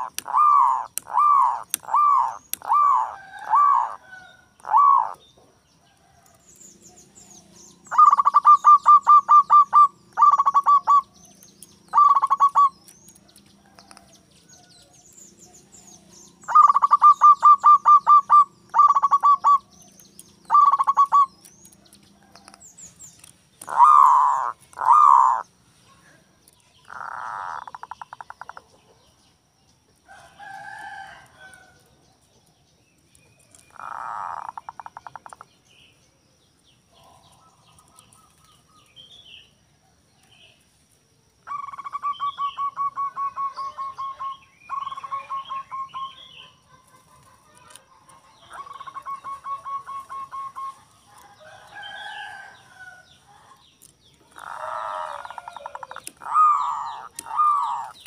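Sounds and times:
doves cooing: 0:00.0 - 0:05.5, 0:07.8 - 0:11.2, 0:11.8 - 0:14.1, 0:15.6 - 0:19.8, 0:20.4 - 0:22.6, 0:23.6 - 0:25.5, 0:26.8 - 0:28.8, 0:33.4 - 0:35.5, 0:41.4 - 0:53.6, 0:54.2 - 0:58.0.

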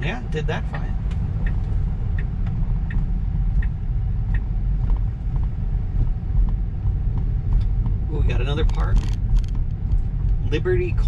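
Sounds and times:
road and tyre rumble: 0:00.0 - 0:11.0.

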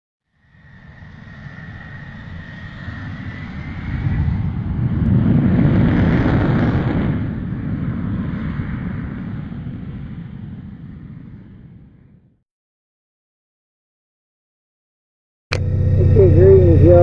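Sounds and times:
jet engines roaring: 0:00.4 - 0:12.2, 0:15.5 - 0:17.0.

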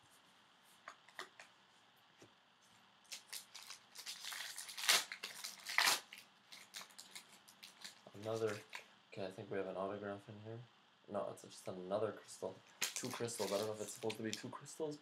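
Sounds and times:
wrapper crinkling: 0:03.1 - 0:08.8, 0:12.8 - 0:14.5.

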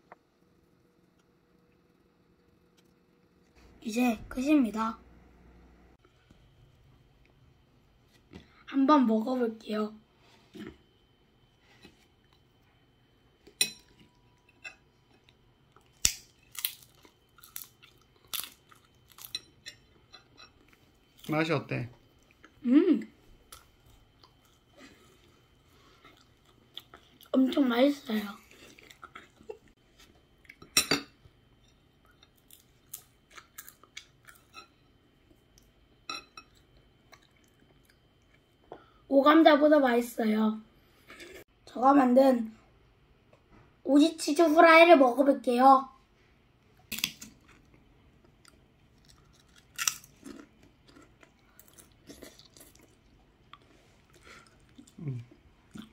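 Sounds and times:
chewing and crunching snacks: 0:13.9 - 0:21.4, 0:22.1 - 0:27.6, 0:28.4 - 0:30.7, 0:31.8 - 0:35.8, 0:36.4 - 0:38.9, 0:46.8 - 0:55.9
crunching snacks: 0:49.0 - 0:53.0.

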